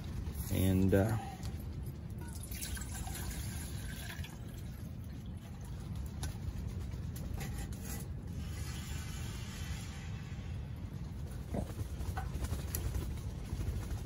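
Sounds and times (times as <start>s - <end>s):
wind buffeting tent: 0.0s - 14.0s
water pouring into bowl: 2.2s - 5.0s.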